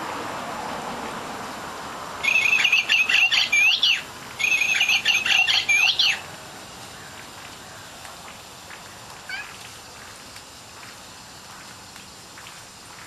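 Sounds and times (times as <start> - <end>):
toy bird chirping birdsong: 2.2 - 6.2.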